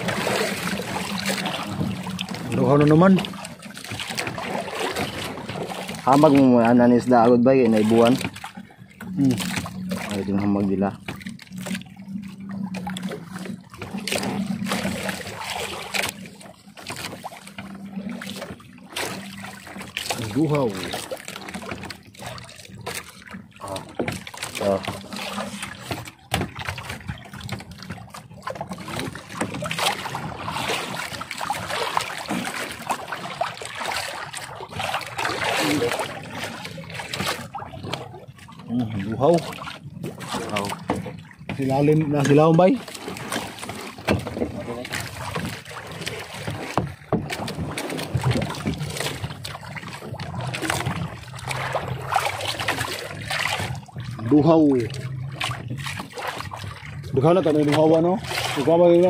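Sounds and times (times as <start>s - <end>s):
wet fishing net hauled by hand: 0.0s - 12.1s, 12.8s - 59.0s
water dripping and splashing: 0.0s - 59.0s
knocks against boat: 22.9s - 30.4s, 39.4s - 51.6s
low engine hum: 43.4s - 59.0s.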